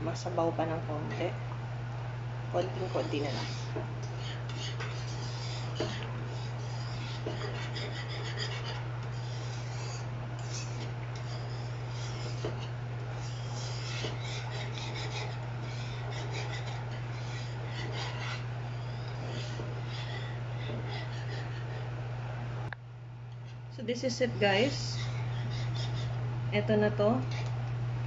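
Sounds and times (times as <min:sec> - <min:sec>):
steady low hum: 0:00.0 - 0:28.0
whisk scraping a pan: 0:02.6 - 0:21.9, 0:24.4 - 0:26.2.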